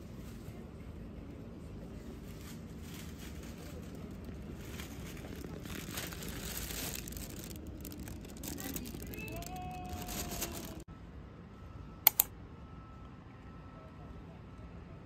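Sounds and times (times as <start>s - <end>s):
plastic bag crinkling: 2.8s - 10.9s.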